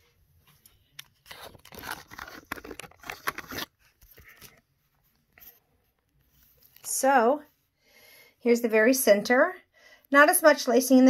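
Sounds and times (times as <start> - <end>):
phone handling rustling: 0.9 - 4.6.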